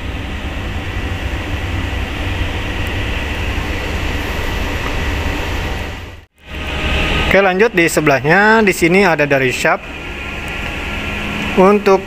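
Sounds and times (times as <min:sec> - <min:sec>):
low rumble: 0:00.0 - 0:11.6.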